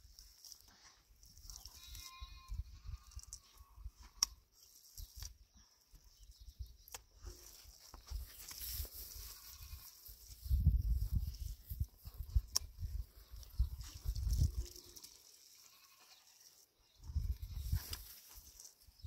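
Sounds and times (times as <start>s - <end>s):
farm animal bleating: 1.5s - 4.4s, 9.0s - 10.1s, 14.6s - 16.6s.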